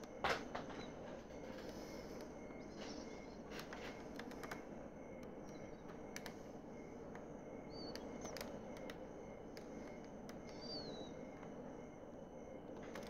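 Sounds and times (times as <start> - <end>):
faint clicks: 0.8 - 6.5, 7.1 - 11.6.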